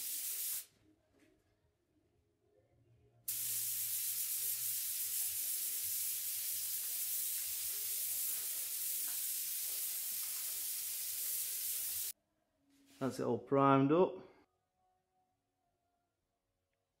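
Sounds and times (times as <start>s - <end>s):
spray gun hissing: 0.0s - 0.7s, 3.3s - 12.2s.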